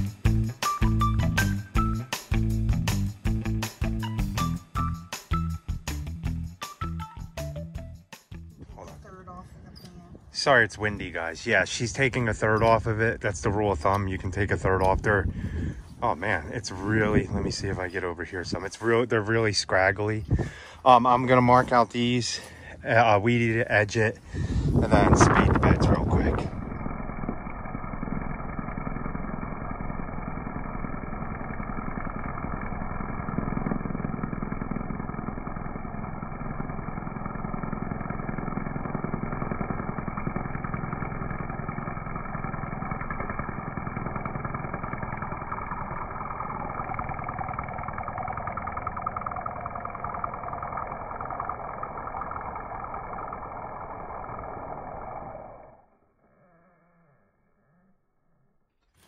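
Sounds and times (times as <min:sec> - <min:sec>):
string trimmer running: 0:00.0 - 0:07.6, 0:10.0 - 0:59.0.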